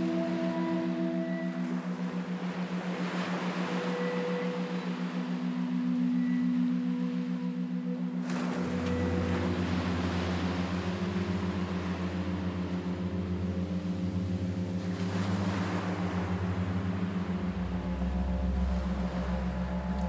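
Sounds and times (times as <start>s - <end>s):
wash of noise like surf: 0.0s - 20.0s
low droning hum with fast pulse: 6.4s - 20.0s.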